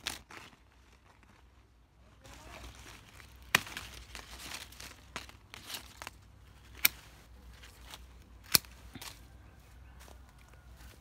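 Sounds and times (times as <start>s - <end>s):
pruning shears snipping twigs: 3.0s - 9.3s.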